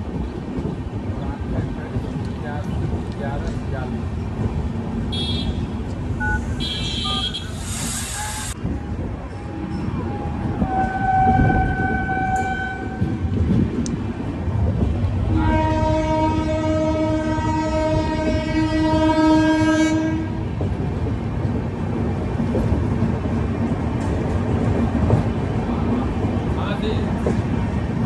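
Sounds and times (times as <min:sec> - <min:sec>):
train wheels rumbling: 0:00.0 - 0:28.0
locomotive air horn: 0:05.1 - 0:05.6, 0:06.2 - 0:08.5, 0:10.6 - 0:13.2, 0:15.3 - 0:20.4.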